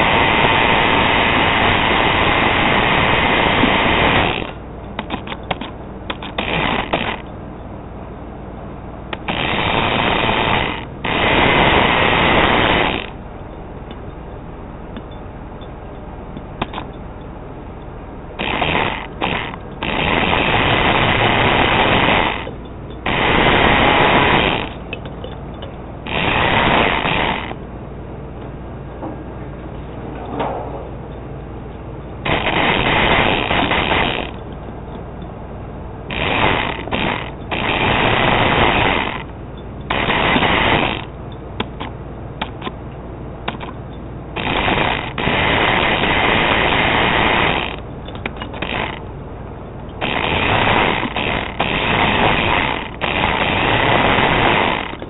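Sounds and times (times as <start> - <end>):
steady low hum: 0.0 - 55.0
toy truck motor whirring: 3.0 - 7.2, 9.2 - 13.2, 18.4 - 25.0, 26.1 - 27.6, 32.3 - 34.4, 36.1 - 39.3, 39.9 - 41.1, 44.4 - 49.0, 50.0 - 55.0.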